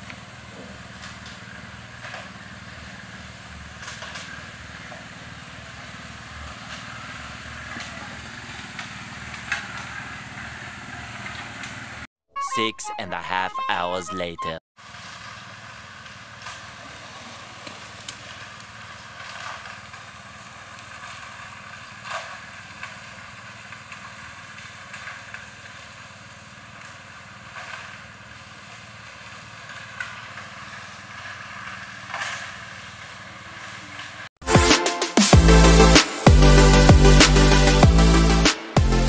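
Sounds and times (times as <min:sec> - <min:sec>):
engine running: 0:00.0 - 0:12.1, 0:14.8 - 0:39.0
wet concrete sliding down chute: 0:14.8 - 0:34.3.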